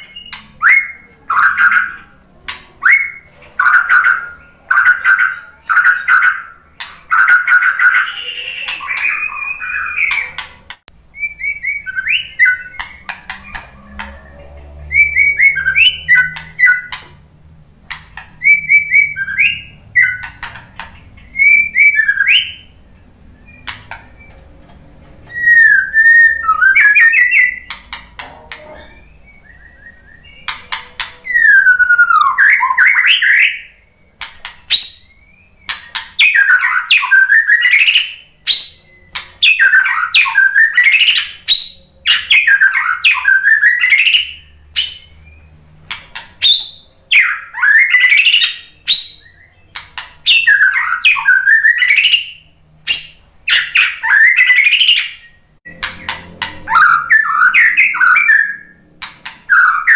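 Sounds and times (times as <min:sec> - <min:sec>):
bird whistling song: 0:00.0 - 0:02.1, 0:02.8 - 0:17.1, 0:18.2 - 0:24.4, 0:25.2 - 0:27.8, 0:28.6 - 0:45.6, 0:46.4 - 0:59.9
bird sweeping calls: 0:02.8 - 0:17.2
sharp clicks: 0:12.7 - 0:14.2, 0:27.6 - 0:28.6.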